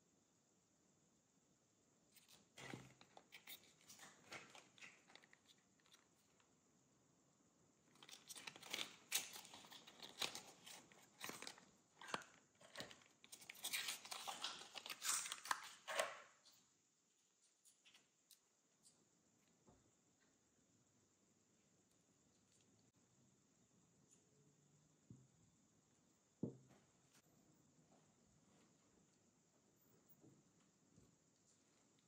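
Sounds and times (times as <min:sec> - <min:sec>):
foil packaging crinkling: 0:07.9 - 0:16.0.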